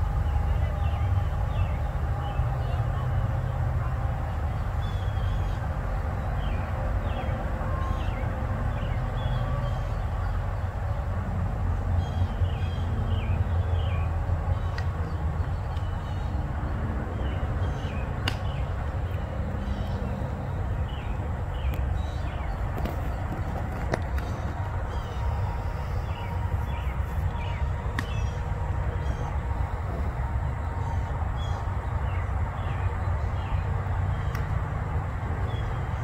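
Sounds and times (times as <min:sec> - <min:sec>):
birds chirping: 0:11.7 - 0:34.4.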